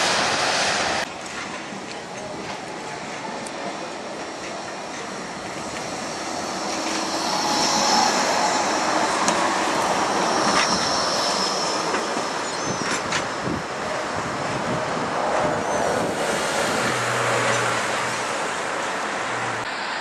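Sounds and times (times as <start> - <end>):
tram passing: 0.0 - 20.0
high wheel squeal: 5.5 - 17.2.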